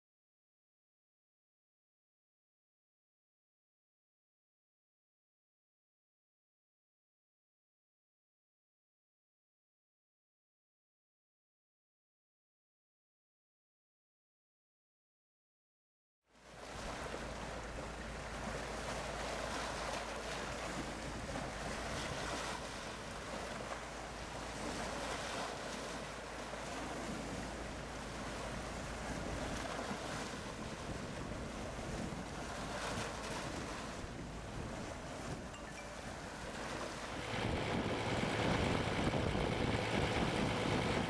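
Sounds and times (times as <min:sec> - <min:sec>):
waves splashing: 0:16.4 - 0:41.0
wind buffeting microphone: 0:16.7 - 0:41.0.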